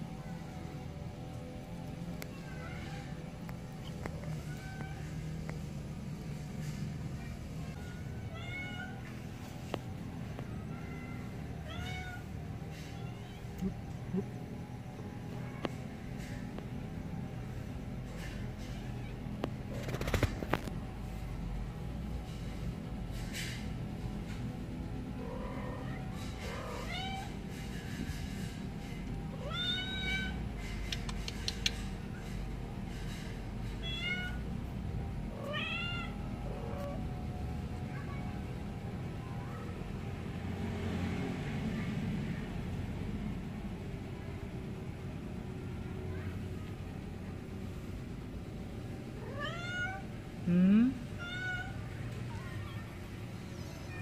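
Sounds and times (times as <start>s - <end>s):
kittens mewing: 10.5s - 14.7s
sharp click: 30.8s - 31.9s.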